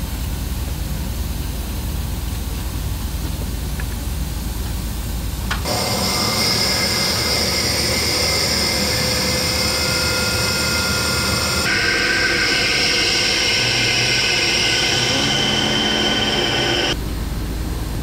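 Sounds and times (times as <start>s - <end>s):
low machinery rumble: 0.0s - 18.0s
air hiss with whistling tones: 5.7s - 17.0s.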